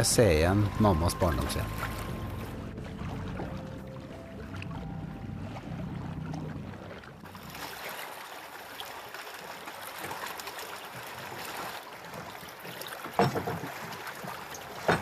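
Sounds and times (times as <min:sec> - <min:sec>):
small waves splashing on rocks: 0:07.2 - 0:15.0.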